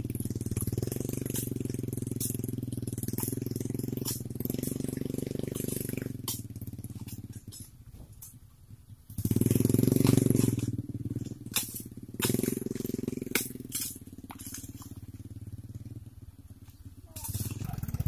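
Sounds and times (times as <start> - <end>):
truck engine revving in mud: 0.0 - 7.7, 9.2 - 16.0, 17.2 - 18.0.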